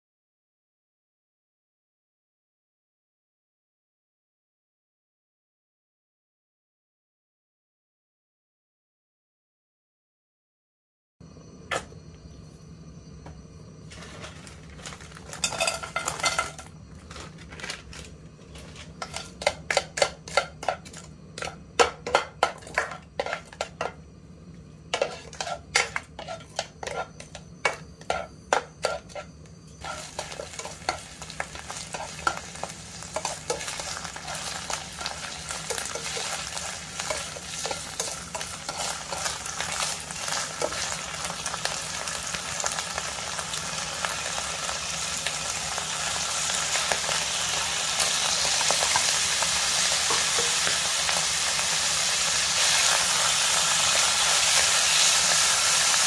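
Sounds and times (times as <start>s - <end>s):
oil sizzling: 13.4s - 56.0s
spatula scraping a frying pan: 13.9s - 24.0s, 24.9s - 41.2s.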